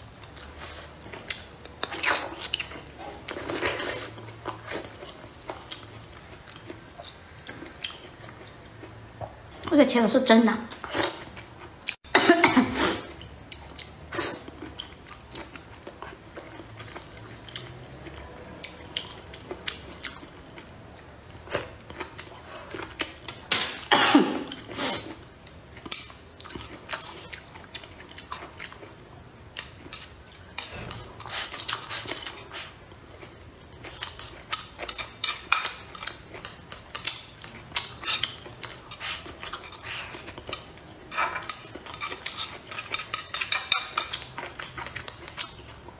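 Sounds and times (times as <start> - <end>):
person chewing food: 0.0 - 9.7, 10.7 - 12.1, 13.1 - 23.5, 24.4 - 45.9
person coughing: 12.1 - 13.0, 23.9 - 24.5
chopsticks scraping ceramic bowl: 34.8 - 45.4.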